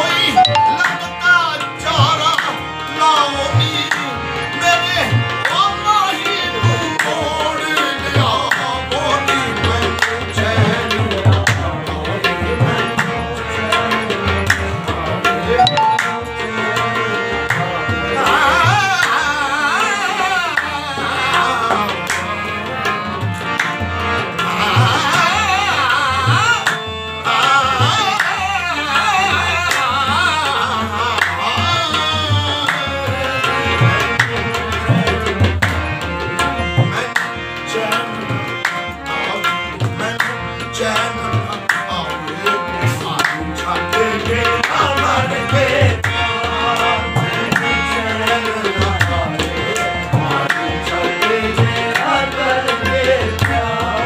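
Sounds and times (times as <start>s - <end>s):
harmonium chords: 0.0s - 54.0s
person singing: 0.3s - 1.2s, 15.4s - 17.0s.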